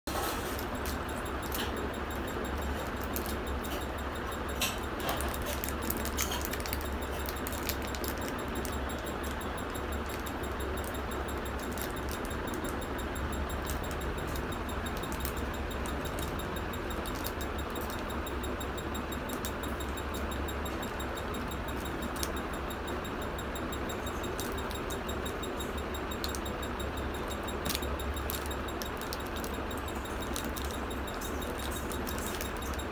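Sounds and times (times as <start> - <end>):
room hum and hiss: 0.1 - 32.9
candy wrappers crinkling: 0.3 - 3.9, 4.6 - 9.4, 11.6 - 12.8, 27.4 - 32.8.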